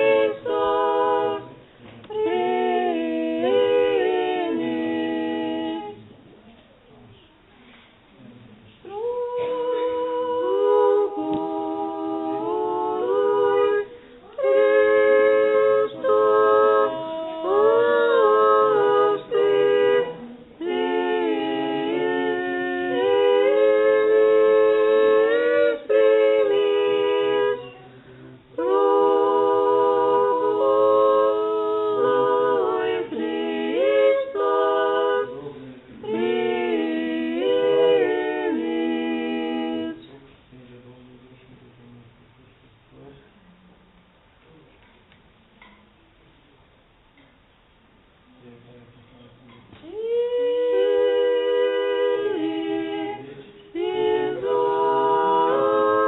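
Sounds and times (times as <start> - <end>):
choir singing chant a cappella: 0.0 - 6.4, 8.2 - 43.4, 49.4 - 56.0
singers breathing: 13.9 - 14.3.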